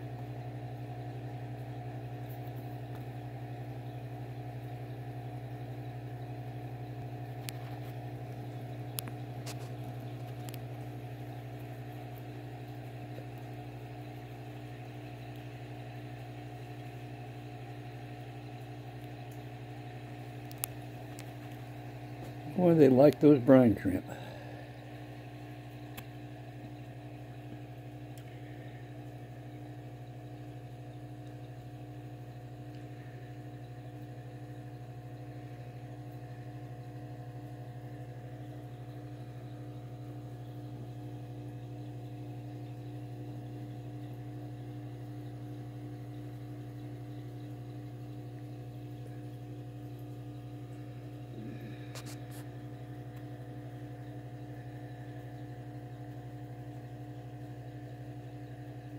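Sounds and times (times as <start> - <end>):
low electrical hum: 0.0 - 58.9
faint clicks: 8.9 - 10.9, 20.4 - 21.6, 25.7 - 26.1, 28.1 - 28.4.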